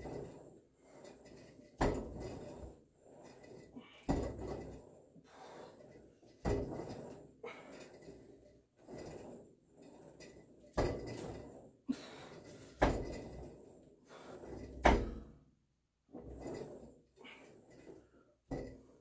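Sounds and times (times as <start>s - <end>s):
gym cable sliding over pulleys: 0.0s - 19.0s
short rattle of weights: 5.4s - 15.4s.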